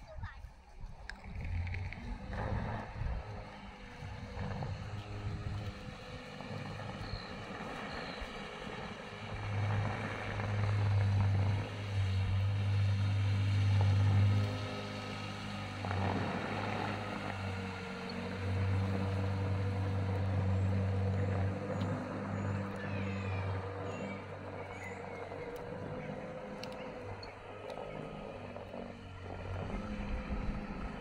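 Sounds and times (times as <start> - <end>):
wind on microphone: 0.0 - 14.4, 29.3 - 31.0
electric boat motor humming: 0.2 - 31.0
bird chirps: 6.8 - 8.8, 18.0 - 28.4.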